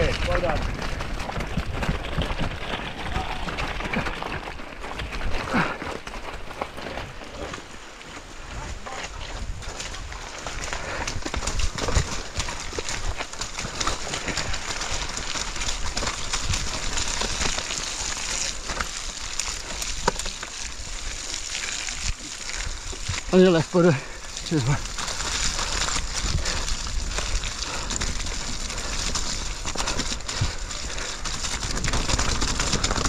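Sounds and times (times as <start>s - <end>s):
bike rattling over rocks: 0.0s - 33.0s
tyres rushing through mud: 0.0s - 33.0s.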